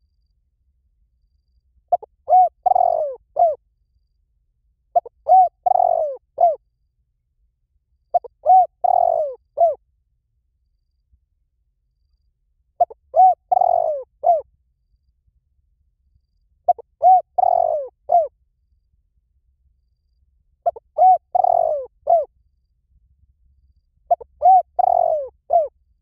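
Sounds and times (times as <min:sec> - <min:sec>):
dove cooing: 0:01.9 - 0:03.6, 0:04.9 - 0:06.6, 0:08.1 - 0:09.8, 0:12.8 - 0:14.5, 0:16.7 - 0:18.3, 0:20.6 - 0:22.3, 0:24.1 - 0:25.7.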